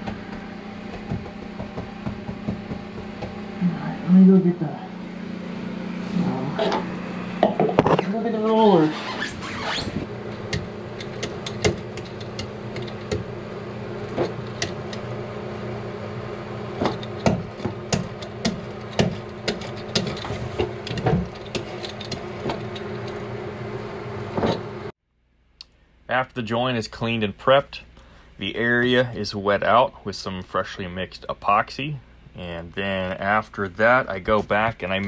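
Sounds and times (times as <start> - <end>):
steady low hum: 0.0 - 35.0
metal roller clicking and rattling: 16.8 - 23.2.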